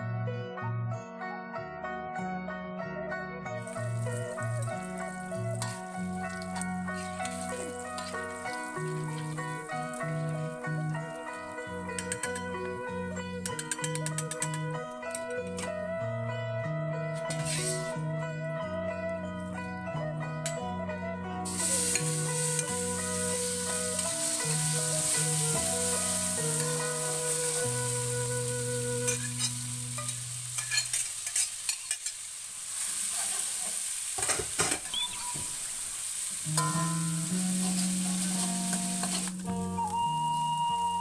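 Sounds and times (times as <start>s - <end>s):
background music with plucked notes: 0.0s - 31.1s, 36.4s - 41.0s
paste sizzling in hot oil: 3.6s - 15.3s, 17.3s - 18.0s, 21.4s - 39.6s
metal spatula scraping wok: 3.7s - 12.6s, 17.3s - 17.9s, 29.0s - 35.1s.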